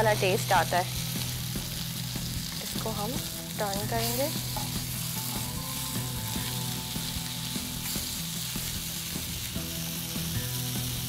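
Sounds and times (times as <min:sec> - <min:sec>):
meat sizzling in oil: 0:00.0 - 0:11.0.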